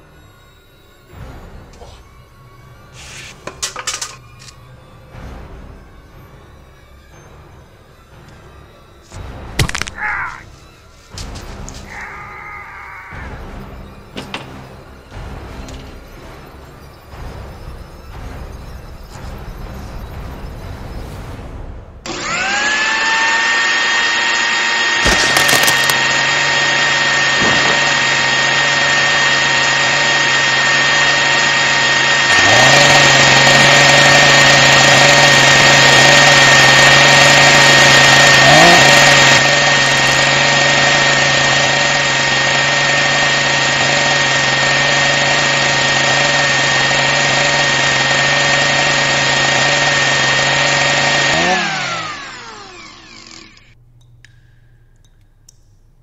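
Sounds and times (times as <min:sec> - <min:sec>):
hand blender motor whining: 0:22.1 - 0:53.8.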